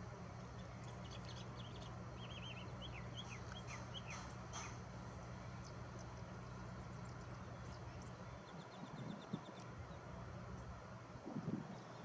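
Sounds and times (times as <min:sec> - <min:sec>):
steady low hum: 0:00.0 - 0:12.0
bird chirping and trilling: 0:00.9 - 0:04.8.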